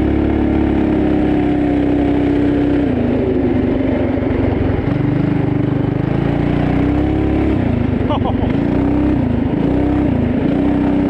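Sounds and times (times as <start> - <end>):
small engine running: 3.3 - 11.0.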